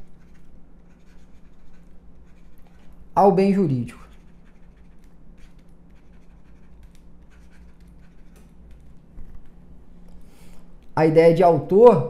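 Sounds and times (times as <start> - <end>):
stylus scratching on tablet: 0.0 - 9.0.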